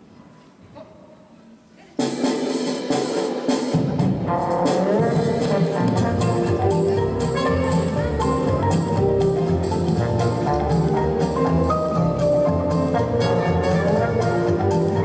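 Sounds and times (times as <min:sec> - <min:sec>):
bass: 0:03.8 - 0:15.0.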